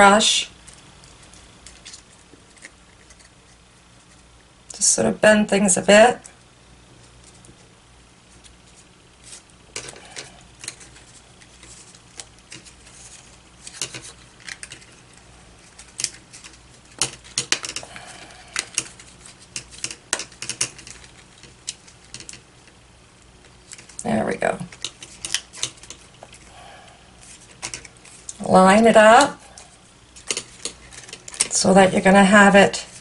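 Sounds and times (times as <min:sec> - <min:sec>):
cardstock clicking and rustling: 0:09.3 - 0:22.8, 0:27.3 - 0:28.4, 0:30.2 - 0:31.6.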